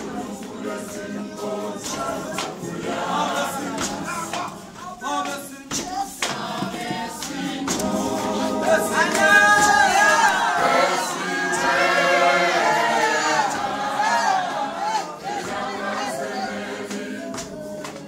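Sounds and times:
choir singing unaccompanied: 0:00.0 - 0:18.0
sharp percussive knocks: 0:01.8 - 0:04.6, 0:05.2 - 0:10.3.

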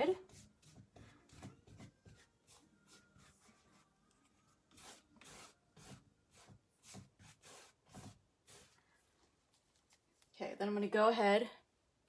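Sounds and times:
paintbrush strokes: 0:00.2 - 0:09.7.

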